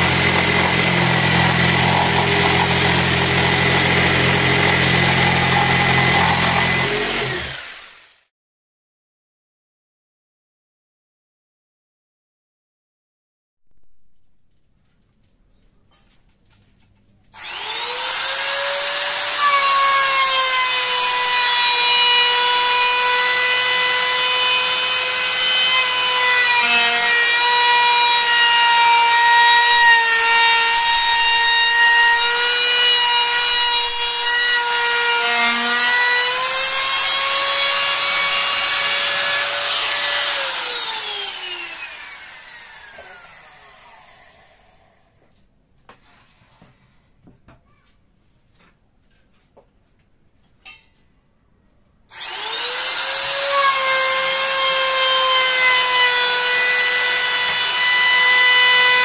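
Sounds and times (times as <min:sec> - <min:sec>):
electric router whining: 0:00.0 - 0:08.2, 0:17.4 - 0:44.9, 0:52.1 - 0:59.0.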